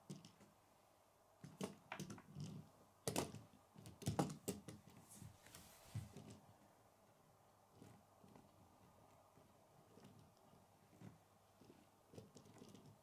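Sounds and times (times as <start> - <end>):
plastic toy car clicking and knocking: 0.0 - 0.5, 1.4 - 5.0.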